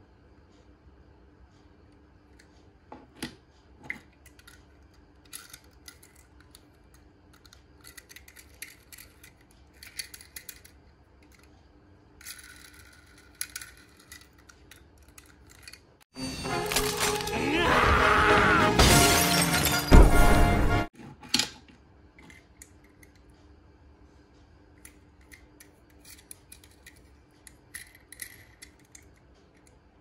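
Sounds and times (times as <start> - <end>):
toy cars clicking and scraping: 3.9 - 11.6, 12.2 - 16.1, 24.8 - 29.8.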